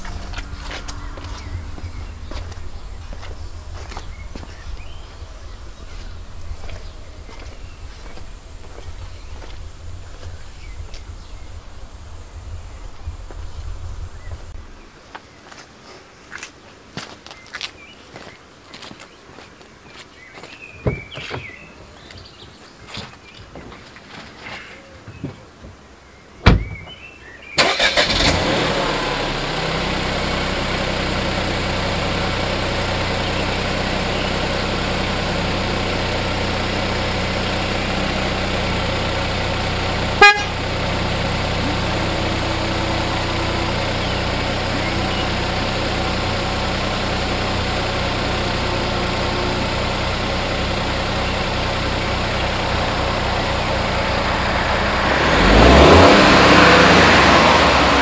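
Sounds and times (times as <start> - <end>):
car engine starting and idling: 0.0 - 14.9, 27.5 - 58.0.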